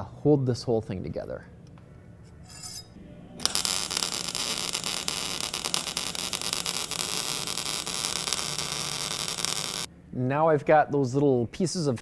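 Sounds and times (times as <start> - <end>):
arc welding crackling hiss: 3.4 - 9.9.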